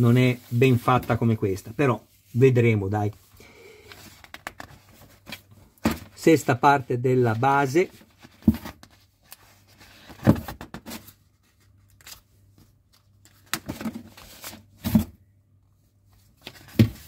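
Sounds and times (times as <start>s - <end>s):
paper pages turning and rustling: 3.9s - 5.5s.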